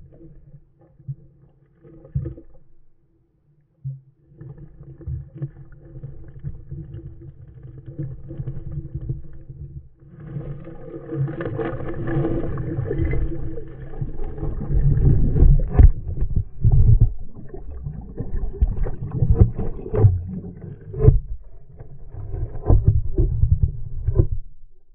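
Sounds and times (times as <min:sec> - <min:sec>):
muffled underwater rumble and sloshing: 0:00.0 - 0:24.9.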